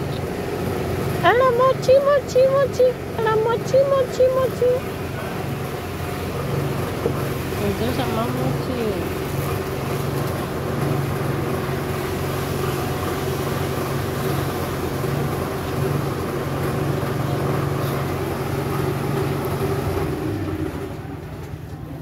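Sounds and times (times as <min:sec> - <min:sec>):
machine humming: 0:00.0 - 0:21.5.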